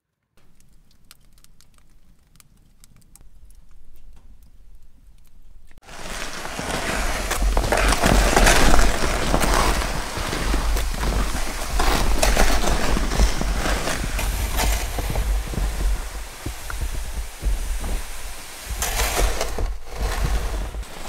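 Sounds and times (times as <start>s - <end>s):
sled dragging over snow: 5.8s - 21.0s
snowshoe footsteps crunching snow: 5.8s - 21.0s.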